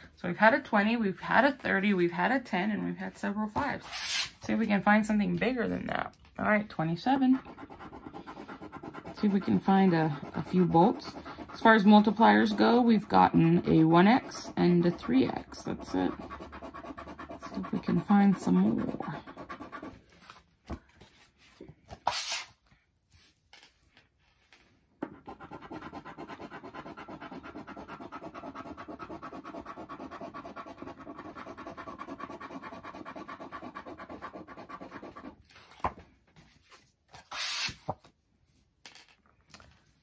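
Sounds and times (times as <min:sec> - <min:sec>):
coin scratching lottery ticket: 0:07.3 - 0:19.9, 0:25.3 - 0:35.3.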